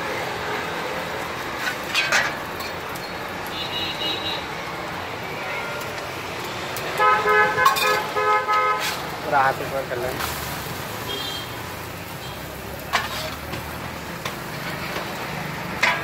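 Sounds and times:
omelette frying on griddle: 0.0s - 16.0s
vehicle horn honking: 3.5s - 4.4s, 7.0s - 9.0s.

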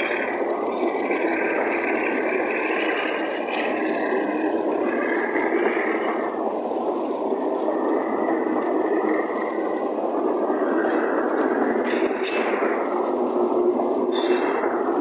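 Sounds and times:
train wheels rumbling on rails: 0.0s - 15.0s
faint clicks and clanks: 10.4s - 15.0s.

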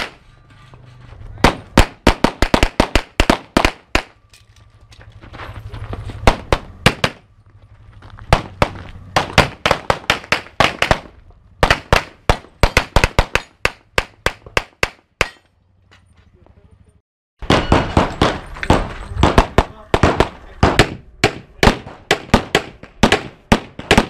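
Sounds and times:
pistols firing rapid shots: 1.4s - 4.2s, 6.2s - 7.2s, 8.3s - 15.0s, 17.4s - 24.0s.

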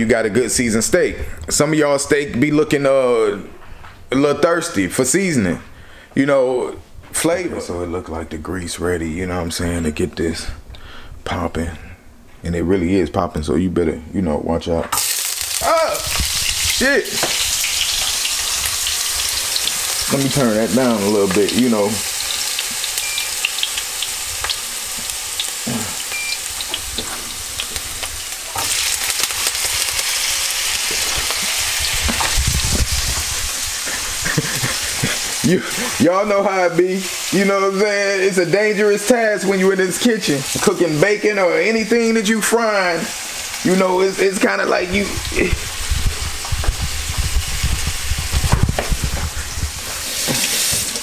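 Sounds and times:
potatoes sizzling in grease: 15.0s - 51.0s
handling bumps and rumbles: 48.2s - 49.7s.

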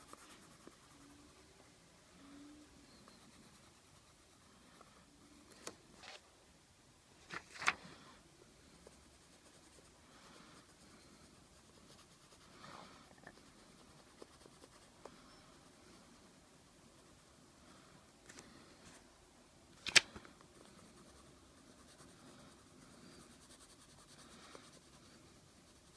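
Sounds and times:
pencil scratching on paper: 0.0s - 1.4s, 3.0s - 4.8s, 8.7s - 16.3s, 20.6s - 25.9s.

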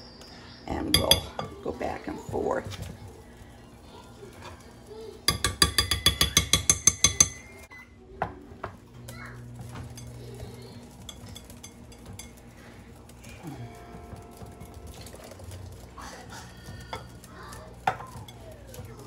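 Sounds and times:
whisk clinking on glass bowl: 0.9s - 1.6s, 5.3s - 7.6s, 9.8s - 12.4s.

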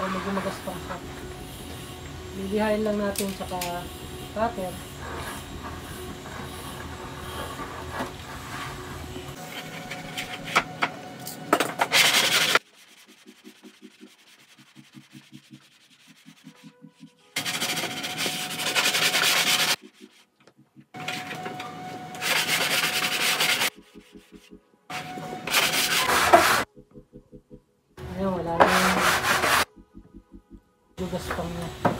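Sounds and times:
sandpaper rubbing plastic: 11.9s - 20.3s, 22.2s - 24.3s, 25.0s - 26.6s, 28.6s - 29.7s.

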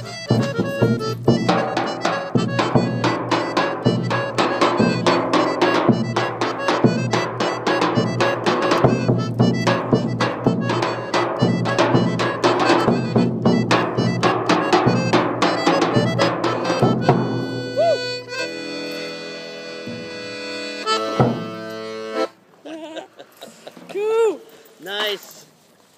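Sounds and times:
bass drum beating: 0.0s - 18.8s, 19.6s - 22.3s
accordion: 0.0s - 23.8s.

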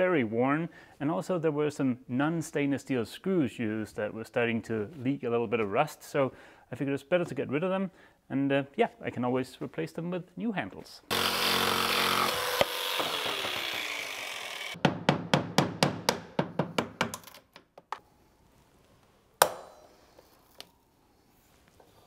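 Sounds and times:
power drill boring into wood: 11.1s - 14.8s
sharp knocks: 14.8s - 17.2s.

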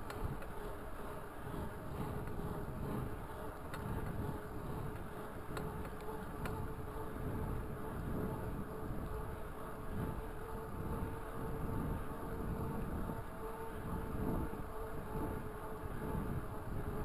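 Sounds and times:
faint ticks: 0.0s - 9.4s
bicycle tyres humming on pavement: 0.0s - 17.0s
wind rumble on microphone: 0.0s - 17.0s.

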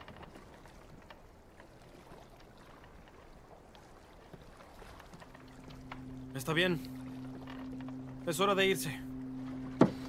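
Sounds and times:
water washing around boat: 0.0s - 10.0s
low steady tone: 5.2s - 10.0s
soft knocks: 9.6s - 10.0s.

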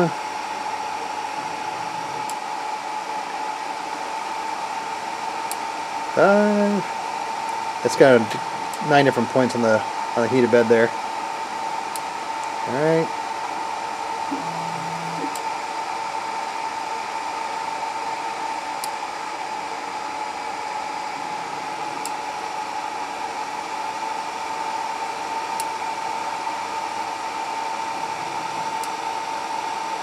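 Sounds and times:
cooling fans whirring: 0.0s - 16.2s
constant high whine: 14.3s - 15.5s.

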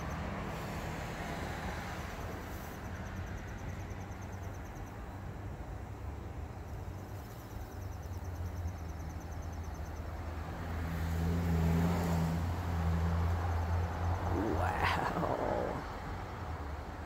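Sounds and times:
pulsing insect trill: 6.7s - 10.3s.

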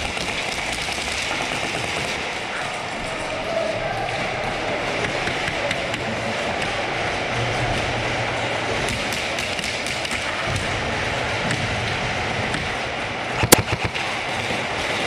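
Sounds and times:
indoor arena din: 0.0s - 15.0s
faint airsoft shots and bb hits: 13.4s - 14.1s.

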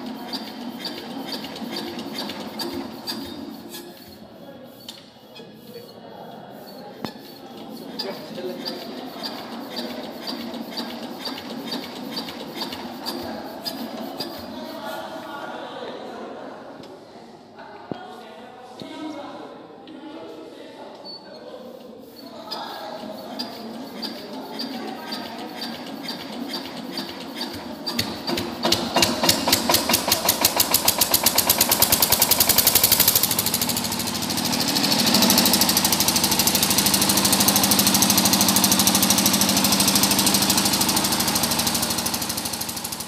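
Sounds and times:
diesel generator engine running: 0.0s - 3.8s, 23.2s - 43.0s
hand crank strokes: 0.0s - 14.8s, 22.0s - 43.0s.

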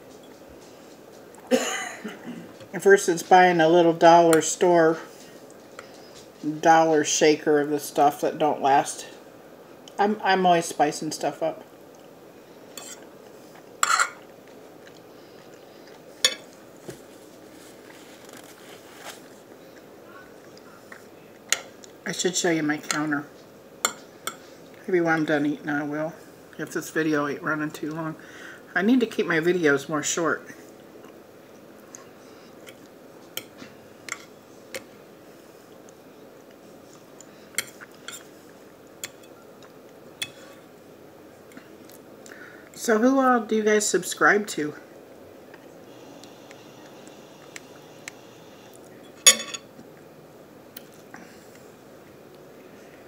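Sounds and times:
faint steady hiss: 0.0s - 53.0s
fork clinking on a plate: 13.8s - 14.2s, 49.2s - 49.7s.

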